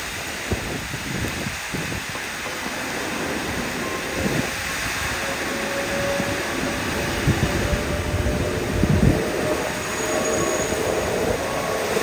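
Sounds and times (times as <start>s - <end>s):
heavy rain hissing: 0.0s - 12.0s
train traction motor whine: 3.0s - 12.0s.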